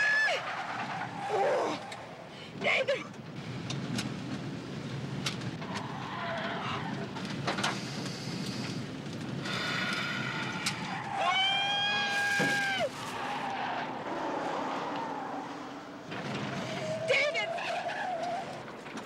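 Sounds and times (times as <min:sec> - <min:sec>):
truck engine and road noise: 0:00.0 - 0:19.0
tyres squealing: 0:16.2 - 0:19.0.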